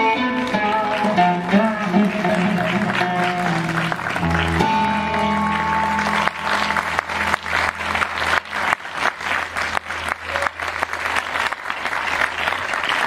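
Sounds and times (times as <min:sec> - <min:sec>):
amplified plucked string note: 0:00.0 - 0:08.7
audience applauding: 0:00.0 - 0:13.0.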